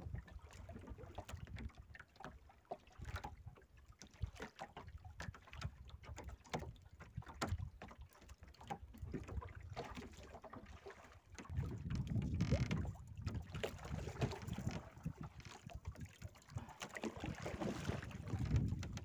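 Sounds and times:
knocks and clicks of fishing line: 6.1s - 8.0s, 11.4s - 16.0s, 17.8s - 19.0s
wind rumbling on microphone: 11.5s - 19.0s.

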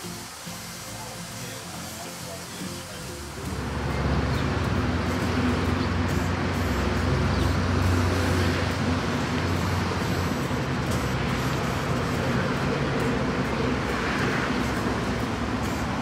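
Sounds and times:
rumble of passing vehicles: 0.0s - 16.0s
low engine drone: 2.8s - 16.0s.

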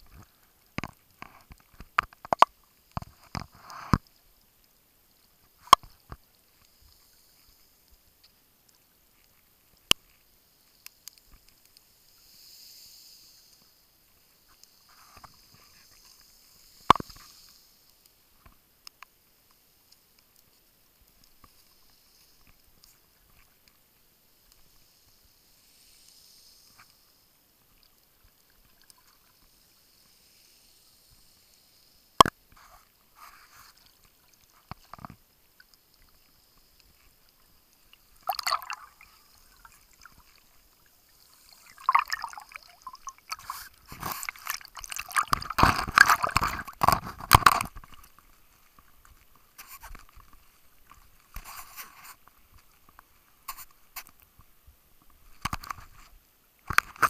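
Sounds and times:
sharp click underwater: 16.8s - 17.6s, 41.6s - 48.0s, 55.3s - 57.0s
water sloshing and gurgling: 33.6s - 51.4s.

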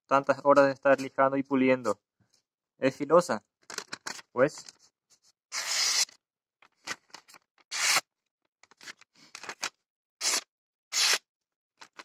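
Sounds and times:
knife slicing through paper: 5.5s - 6.2s, 7.7s - 8.0s, 10.2s - 11.2s.

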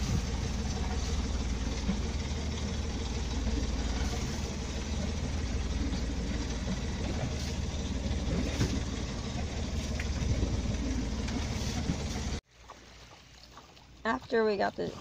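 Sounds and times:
boat motor idling: 0.0s - 13.0s.

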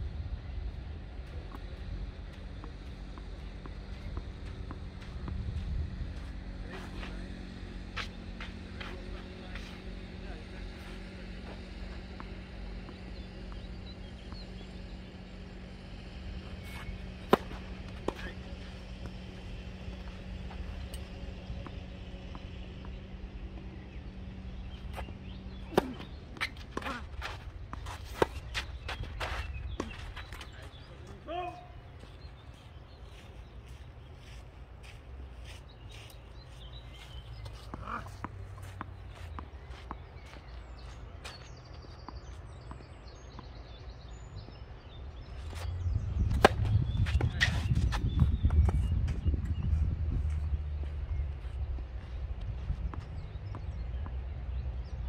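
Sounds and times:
wind rumble on microphone: 0.0s - 2.4s, 3.8s - 7.4s, 44.1s - 55.0s
birds chirping: 0.3s - 55.0s
tennis ball bouncing: 11.5s - 30.5s, 45.5s - 48.9s
tennis racket hitting ball: 16.7s - 19.2s, 25.6s - 28.7s, 46.3s - 47.7s.

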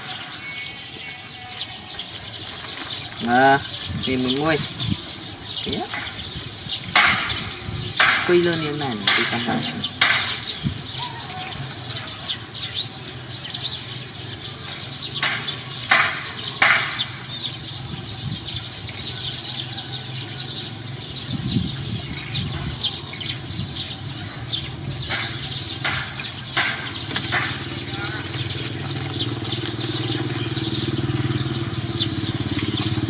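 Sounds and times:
sharp crackles: 0.0s - 12.6s, 22.0s - 33.0s
small birds chirping: 0.0s - 33.0s.

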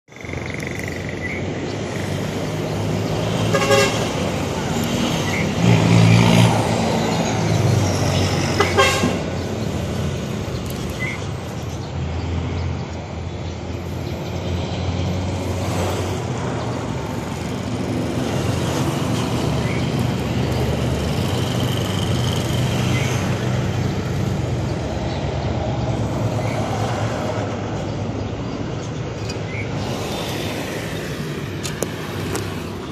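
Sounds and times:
street traffic rumble: 0.0s - 32.9s
vehicle horn: 3.5s - 4.2s, 8.6s - 9.3s.

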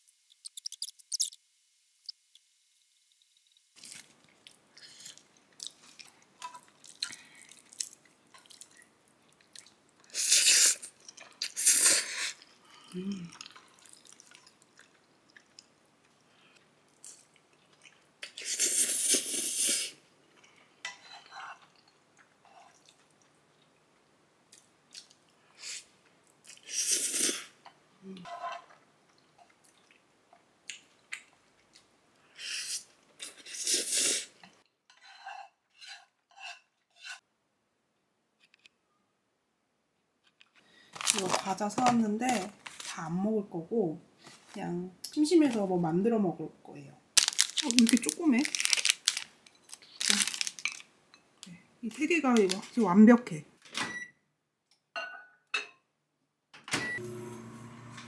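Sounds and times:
person chewing noodles: 3.8s - 20.8s, 48.5s - 50.8s.

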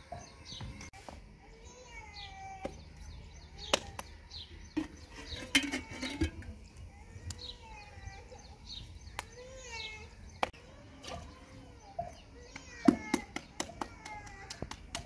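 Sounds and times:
birds chirping: 0.0s - 15.0s
hands slapping dough: 12.5s - 15.0s.

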